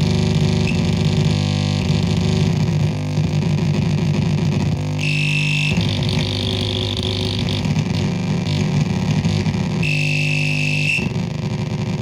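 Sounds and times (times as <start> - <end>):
gritty buzzing synth drone: 0.0 - 12.0
high whine: 0.0 - 12.0.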